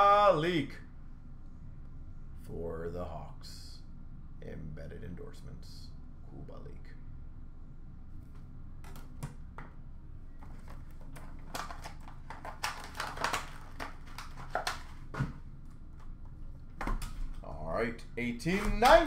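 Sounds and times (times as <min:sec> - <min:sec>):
trading cards being handled: 0:10.4 - 0:17.4, 0:18.4 - 0:19.0.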